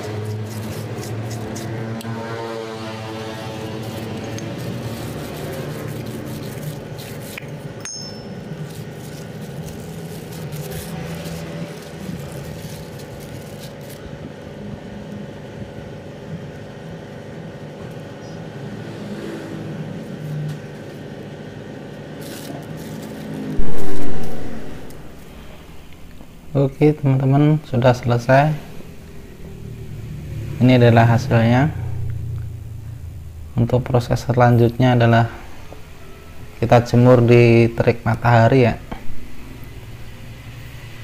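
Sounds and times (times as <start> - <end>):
hands scraping on plastic sheet: 3.5 - 7.7
steady low drone: 23.1 - 36.6.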